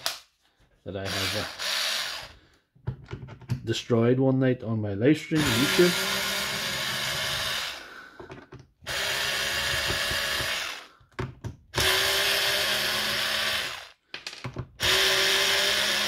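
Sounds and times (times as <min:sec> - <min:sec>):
cordless screwdriver running: 0:01.0 - 0:02.4, 0:05.4 - 0:07.8, 0:08.8 - 0:10.9, 0:11.8 - 0:14.0, 0:14.8 - 0:16.0.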